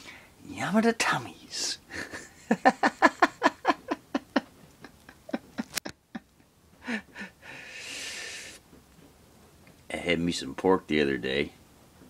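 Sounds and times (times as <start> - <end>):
man chuckling: 1.9 - 7.6
breathy exhale: 6.8 - 8.6.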